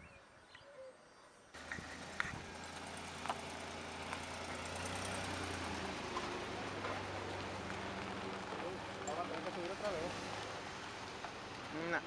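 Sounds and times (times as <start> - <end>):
faint bird chirps: 0.0 - 1.5
vehicle engine running: 1.6 - 12.0.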